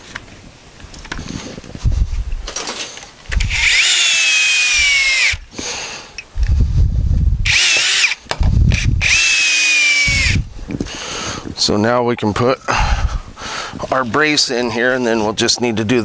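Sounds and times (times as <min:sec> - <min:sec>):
cordless drill driving screws: 0:03.4 - 0:05.5, 0:07.5 - 0:10.4.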